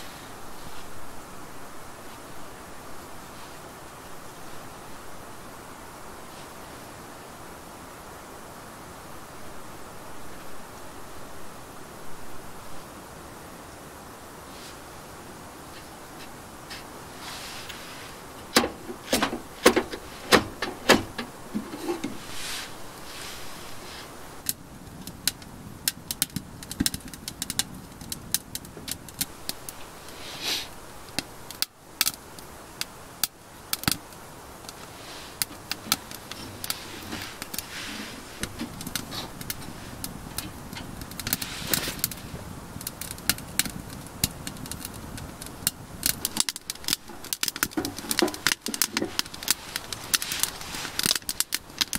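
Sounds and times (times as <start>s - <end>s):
kindling crackling and popping: 15.6s - 51.9s.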